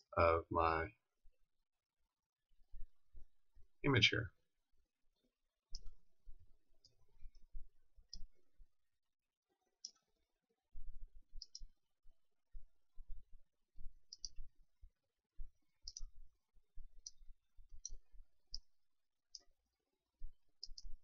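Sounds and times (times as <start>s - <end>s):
mouse buttons clicking: 5.7s - 6.0s, 11.4s - 11.7s, 14.1s - 14.5s, 15.8s - 16.1s, 17.0s - 18.7s, 20.6s - 21.0s.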